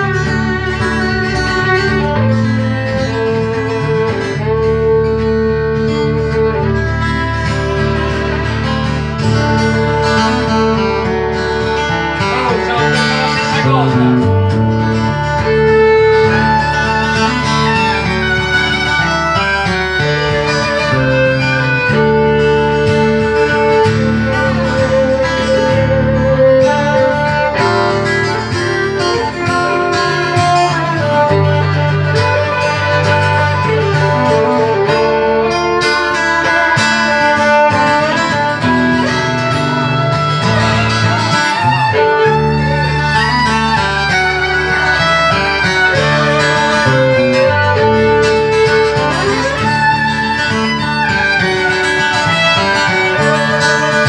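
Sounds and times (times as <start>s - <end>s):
acoustic guitar accompaniment: 0.0s - 54.0s
bowed fiddle: 0.0s - 54.0s.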